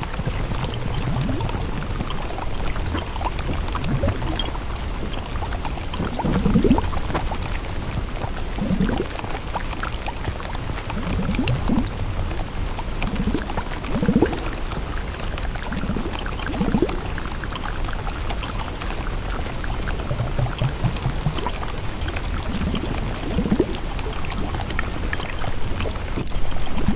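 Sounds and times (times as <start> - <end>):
water gurgle: 0.0 - 26.9
water pouring: 0.0 - 26.9.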